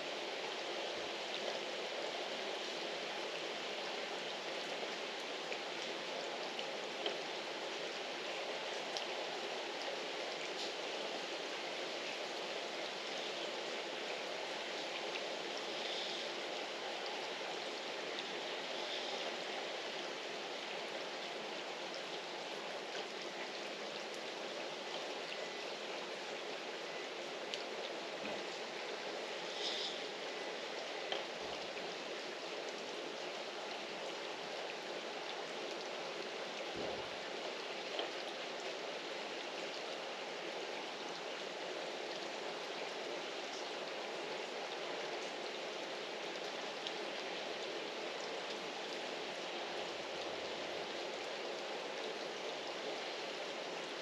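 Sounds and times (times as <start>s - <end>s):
steady rain on roofs and foliage: 0.0s - 54.0s
water drips: 12.3s - 32.0s.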